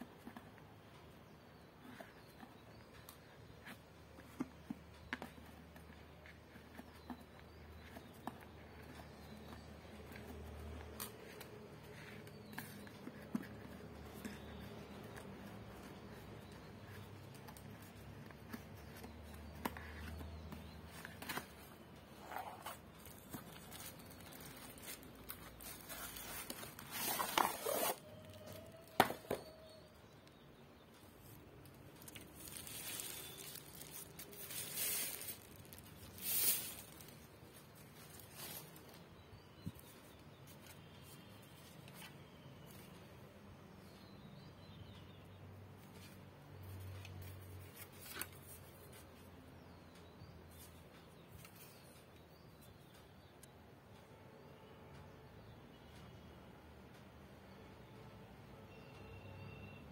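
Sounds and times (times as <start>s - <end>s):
cardboard and plastic rustling: 1.8s - 29.8s, 31.3s - 43.0s, 45.8s - 49.1s.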